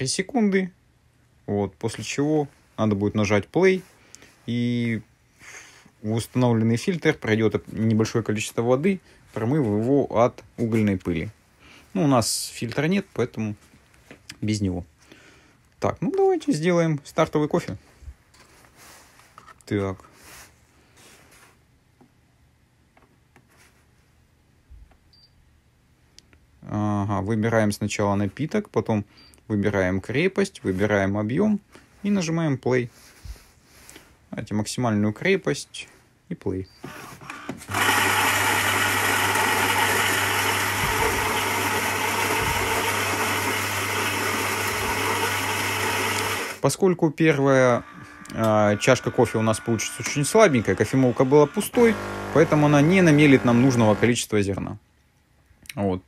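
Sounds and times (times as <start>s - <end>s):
soft rustles: 12.6s - 14.3s, 17.7s - 21.7s, 23.3s - 24.2s
coffee grinder motor hum: 37.3s - 46.6s, 47.6s - 54.1s.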